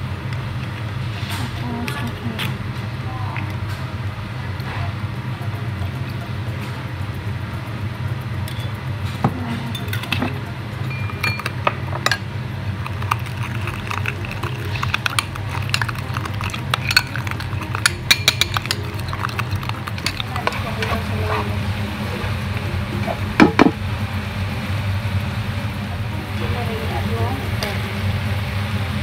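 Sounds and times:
steady low hum: 0:00.0 - 0:29.0
metal spoon stirring in bowl: 0:09.4 - 0:23.8.

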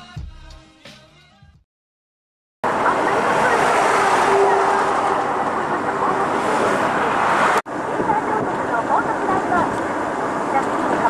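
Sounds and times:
music: 0:00.0 - 0:01.6
car road and engine noise: 0:02.6 - 0:11.0.

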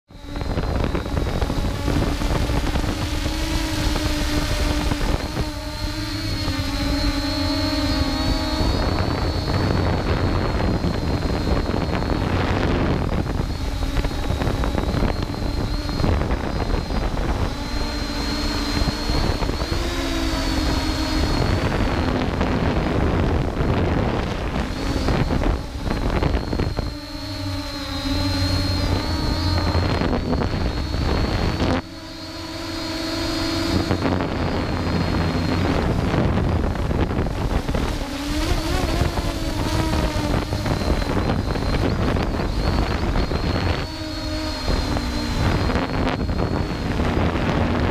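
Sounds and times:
quadcopter motors buzzing whine: 0:00.1 - 0:47.9
wind rumbling on microphone: 0:00.1 - 0:47.9.

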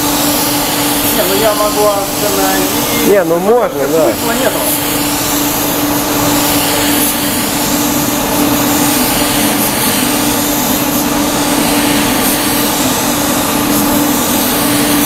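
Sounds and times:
spray gun hissing: 0:00.0 - 0:15.0
ventilation hum: 0:00.0 - 0:15.0.

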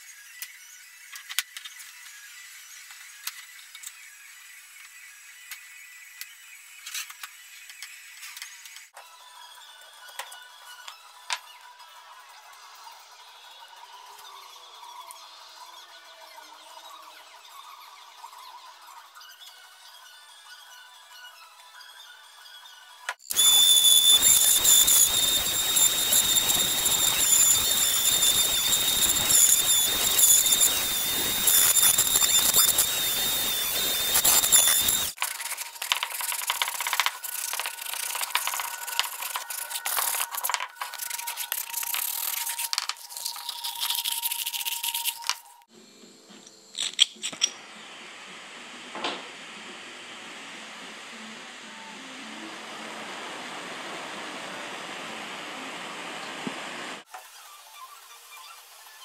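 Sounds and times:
power tool high whine: 0:00.0 - 0:46.6, 0:47.4 - 0:57.1.

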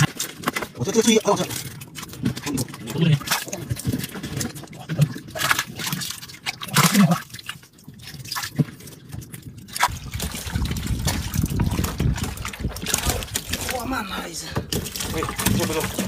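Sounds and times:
steady low rumble: 0:09.8 - 0:16.0.

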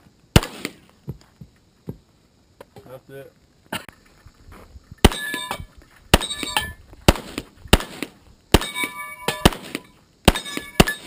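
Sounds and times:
pistol shots: 0:00.4 - 0:00.8, 0:05.0 - 0:11.0
steel target plate clanging: 0:05.0 - 0:08.0, 0:08.6 - 0:11.0.

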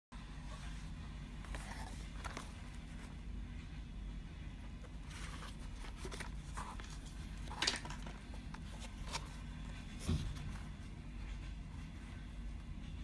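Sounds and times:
steady low hum: 0:00.1 - 0:13.0
cardboard box rustling: 0:04.9 - 0:10.8.

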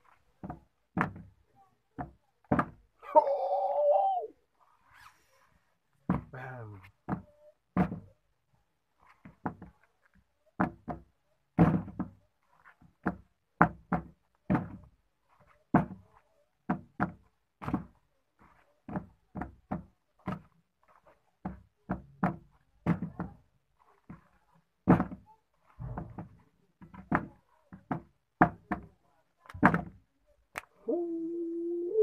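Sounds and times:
sandals knocking on hard surface: 0:00.0 - 0:02.8, 0:09.0 - 0:30.0.

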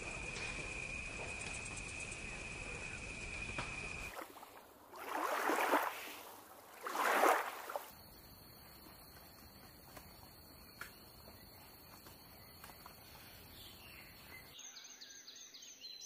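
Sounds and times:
water sloshing: 0:04.0 - 0:07.9.

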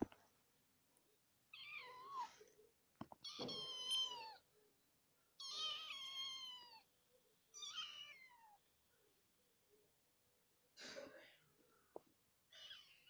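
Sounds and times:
kitten meowing: 0:07.6 - 0:08.6.

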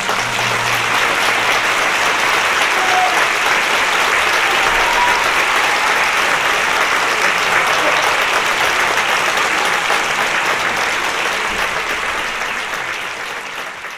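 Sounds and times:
orchestra low note: 0:00.0 - 0:02.7
audience applauding: 0:00.0 - 0:13.9.

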